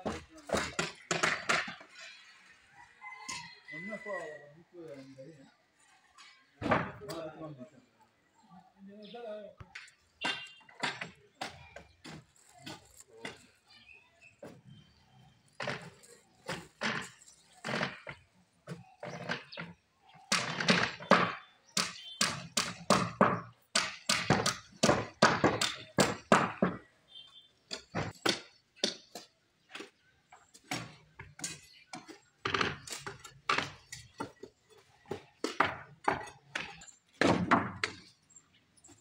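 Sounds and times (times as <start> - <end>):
workers talking: 0.0 - 19.2.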